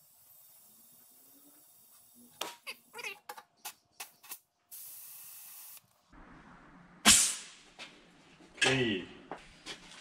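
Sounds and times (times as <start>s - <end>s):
loud sudden air blast: 7.0s - 7.6s.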